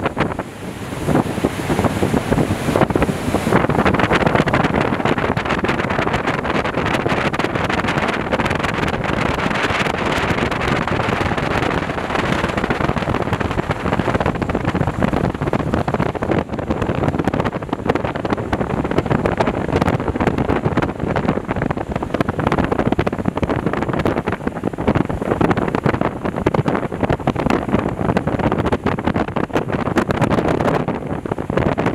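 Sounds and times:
hydrofoil turbine rushing: 0.0 - 31.9
wind buffeting microphone: 0.0 - 31.9
water spray: 0.1 - 5.4.

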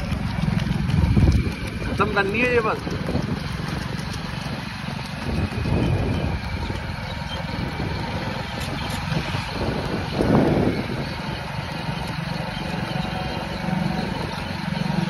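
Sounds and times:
vehicle engine running: 0.0 - 15.0.

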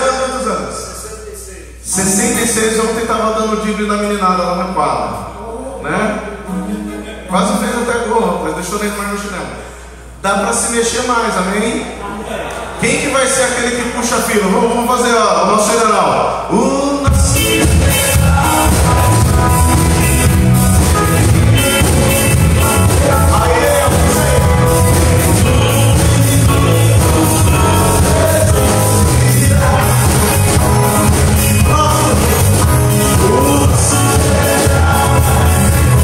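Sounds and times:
keyboard: 0.0 - 36.0
man singing: 16.5 - 36.0
drum kit beat: 17.1 - 36.0
electric guitars: 17.1 - 36.0.

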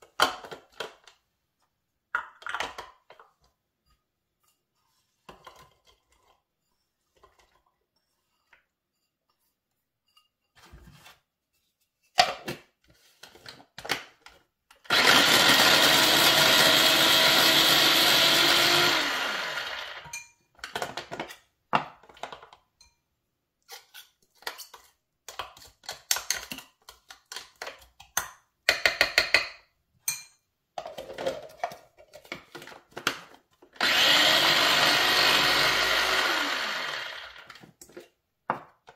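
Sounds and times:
electric mini chopper whirring: 14.9 - 20.0, 33.8 - 37.4.

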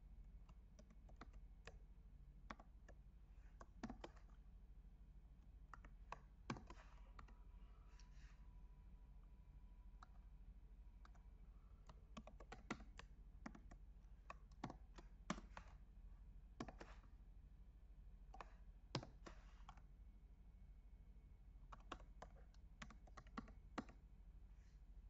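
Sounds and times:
computer keyboard typing: 0.5 - 1.8, 2.5 - 3.0, 3.6 - 4.4, 5.7 - 7.3, 11.8 - 15.8, 16.6 - 17.0, 18.3 - 19.8, 21.7 - 24.0.

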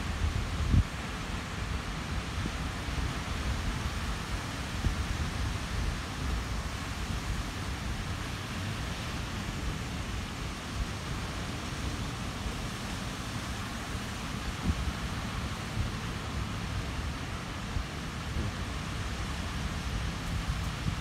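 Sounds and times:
wind buffeting microphone: 14.4 - 21.0.

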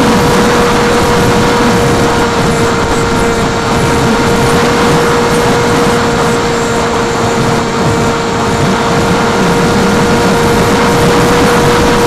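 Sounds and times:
electric motor and propeller whine: 0.0 - 12.0
loud wind rush: 0.0 - 12.0.

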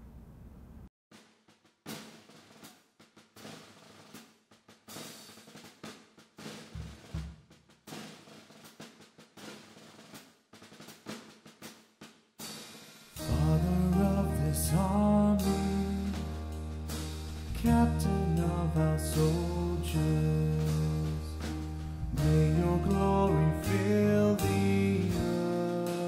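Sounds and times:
snare drum rolls: 1.1 - 26.0
band playing a hymn: 13.2 - 26.0
bass drum hit: 13.2 - 26.0.

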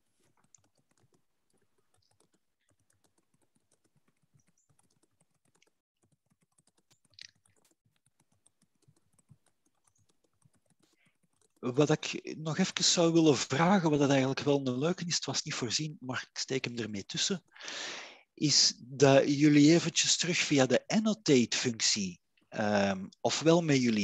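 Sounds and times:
computer keyboard typing: 0.0 - 12.8.

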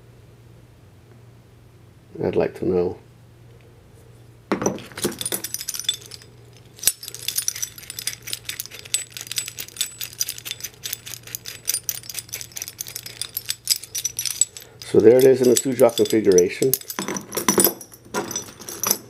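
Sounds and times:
metal parts clinking and rattling: 4.5 - 19.0.

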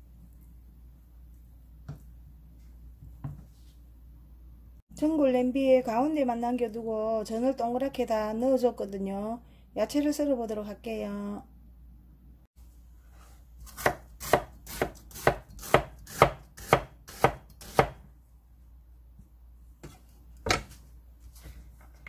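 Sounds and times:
knife chopping on wooden board: 13.6 - 18.0.

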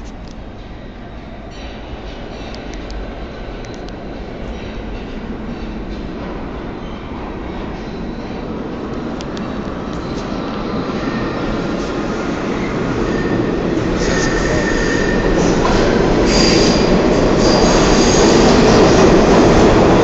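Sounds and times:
subway train rumbling into station: 0.0 - 20.0.

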